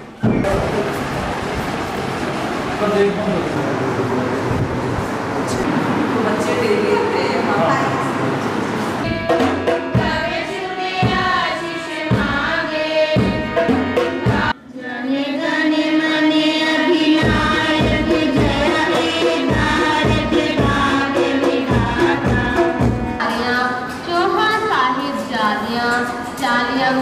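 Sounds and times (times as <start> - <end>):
girls singing in unison: 9.0 - 27.0
steady drum beat: 9.1 - 10.4, 17.2 - 23.2.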